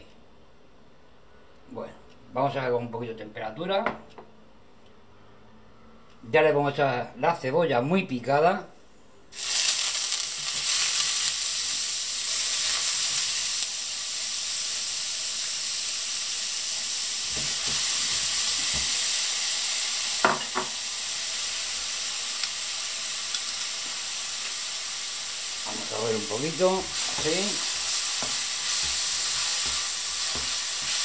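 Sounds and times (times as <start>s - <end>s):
onion sizzling in hot oil: 9.4s - 31.0s.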